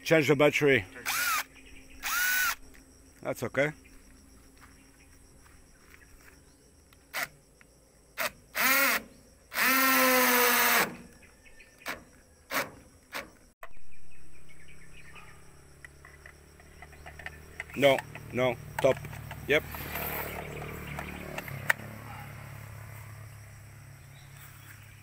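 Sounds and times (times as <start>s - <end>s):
cordless drill whirring: 1.0s - 2.6s, 8.2s - 11.1s.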